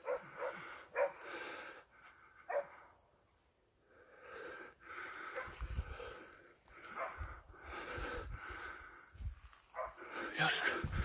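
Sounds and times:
dog barking: 0:00.0 - 0:01.2, 0:02.5 - 0:02.8, 0:07.0 - 0:07.2, 0:09.7 - 0:10.0.

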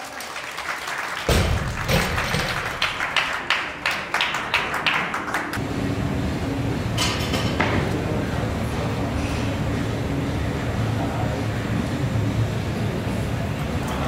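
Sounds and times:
scattered clapping: 0:00.0 - 0:05.6.

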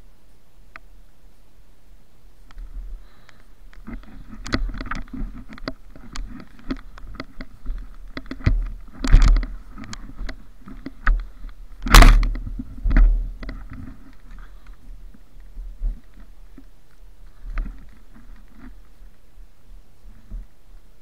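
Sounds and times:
heavy bumps: 0:02.6 - 0:18.8.

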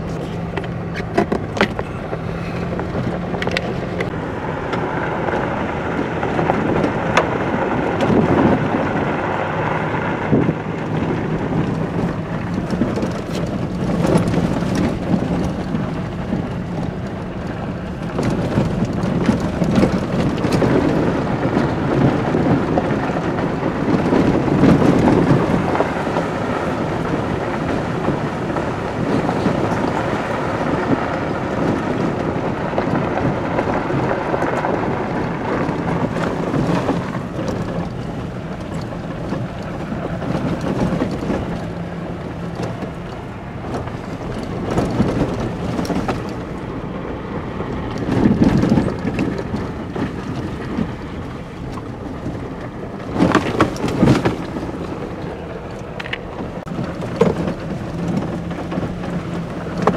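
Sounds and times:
tyres crunching on gravel: 0:00.0 - 0:59.9
vehicle body rattling: 0:00.0 - 0:59.9
vehicle engine rumble: 0:00.0 - 0:59.9.

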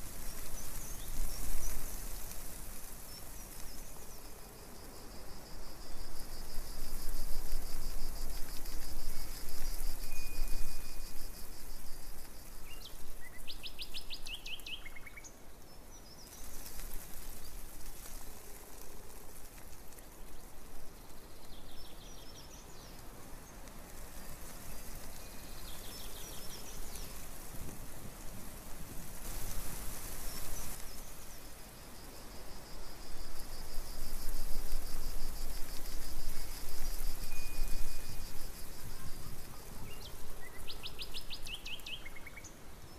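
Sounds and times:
steady background hiss: 0:00.0 - 0:42.9
songbirds singing: 0:12.7 - 0:16.7.

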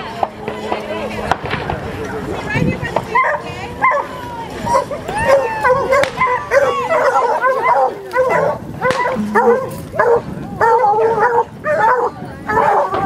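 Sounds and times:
hounds baying and yelping: 0:04.7 - 0:13.0.

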